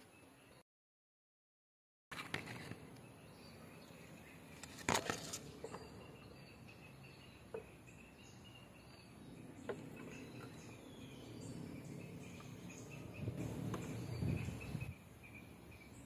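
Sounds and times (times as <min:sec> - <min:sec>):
faint insect drone: 0:02.3 - 0:16.0.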